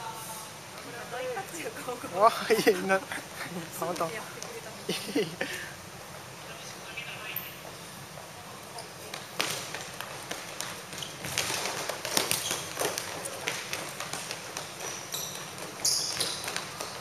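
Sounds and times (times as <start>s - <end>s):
quick footsteps on court: 8.9s - 17.0s
shoe squeaks: 10.8s - 17.0s.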